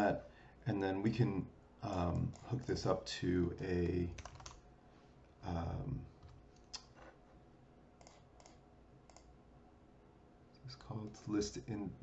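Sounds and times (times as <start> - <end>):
keyboard and mouse clicks: 4.2 - 4.6, 8.0 - 9.3.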